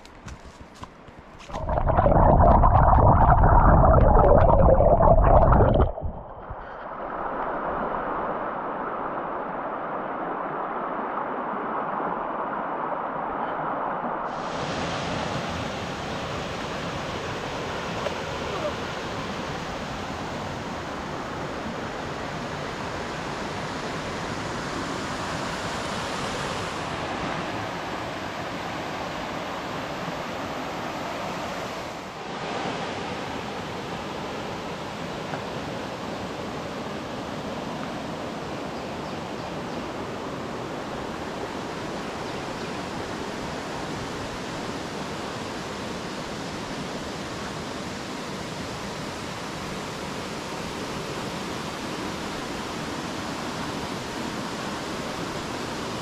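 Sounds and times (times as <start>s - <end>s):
creek rushing over rocks: 0.2s - 21.8s.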